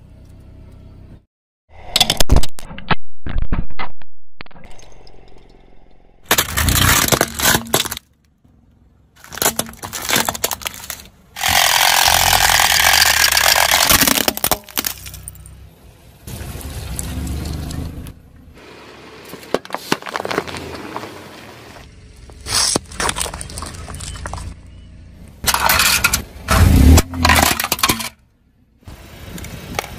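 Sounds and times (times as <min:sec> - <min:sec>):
tyre crushing objects: 0:06.3 - 0:08.1, 0:09.2 - 0:15.2, 0:19.3 - 0:21.8.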